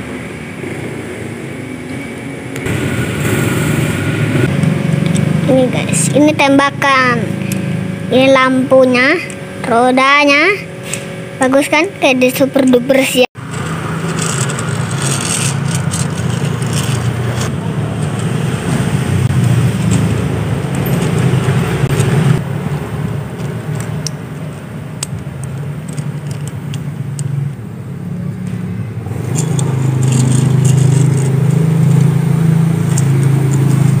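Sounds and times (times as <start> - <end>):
low engine-like drone: 0.0 - 34.0
toy truck wheels rolling on concrete: 13.4 - 18.9, 19.5 - 27.3, 29.2 - 32.1.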